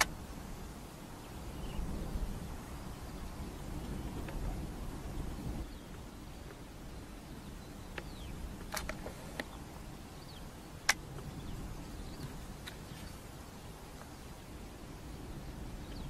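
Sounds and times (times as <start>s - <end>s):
low wind rumble: 0.0s - 16.0s
small birds chirping: 0.0s - 16.0s
sharp clicks: 7.9s - 9.6s, 10.8s - 11.3s.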